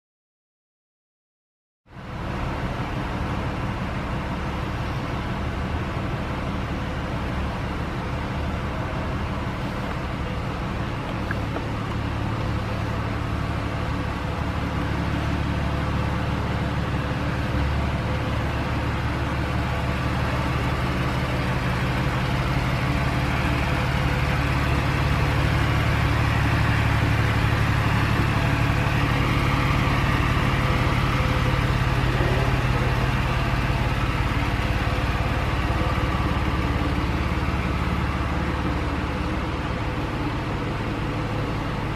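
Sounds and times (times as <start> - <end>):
car engine idling: 1.9 - 41.9.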